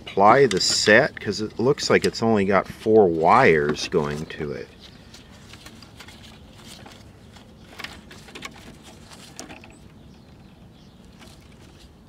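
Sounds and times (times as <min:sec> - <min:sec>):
wires rustling: 0:03.2 - 0:12.0.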